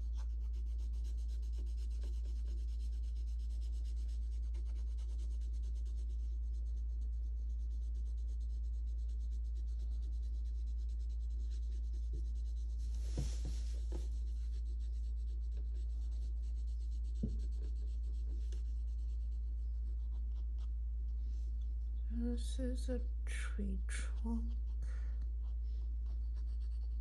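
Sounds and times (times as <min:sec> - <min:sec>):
pencil scratching on paper: 0:00.0 - 0:20.8, 0:24.0 - 0:24.8, 0:25.4 - 0:27.0
steady low hum: 0:00.0 - 0:27.0.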